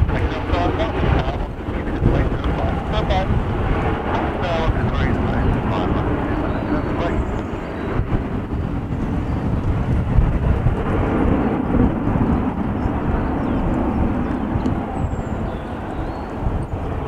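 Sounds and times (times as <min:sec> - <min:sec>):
jet airliner climbing: 0:00.0 - 0:17.0.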